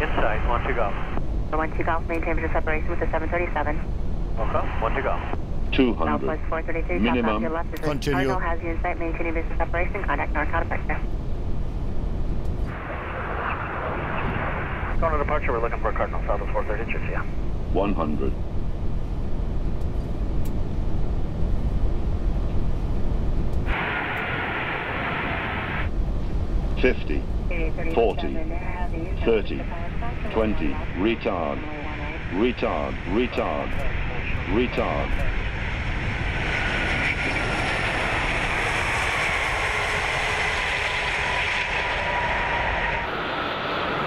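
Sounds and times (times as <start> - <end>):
cockpit airflow and engine rumble: 0.0 - 44.0
jet engines hissing: 3.4 - 8.6, 19.8 - 44.0
rushing air: 23.6 - 26.8.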